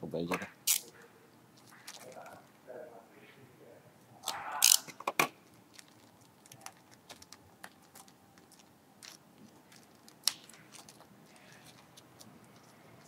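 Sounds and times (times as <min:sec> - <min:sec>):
plastic packaging crinkling: 0:05.7 - 0:12.8.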